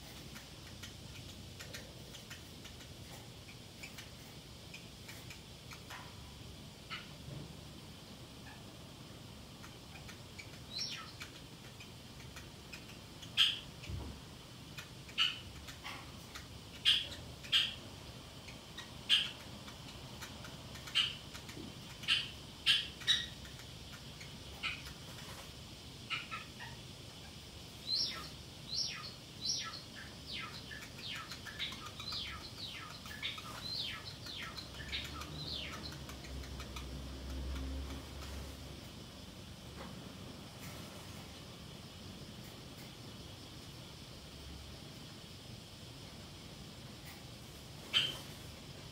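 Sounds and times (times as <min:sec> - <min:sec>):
parrotlet chirping: 0:00.0 - 0:07.2, 0:08.1 - 0:39.2, 0:47.8 - 0:48.9.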